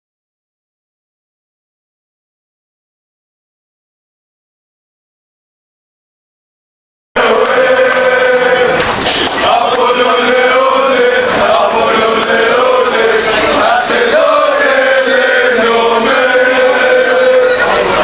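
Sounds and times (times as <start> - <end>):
crowd of men chanting: 7.2 - 18.0.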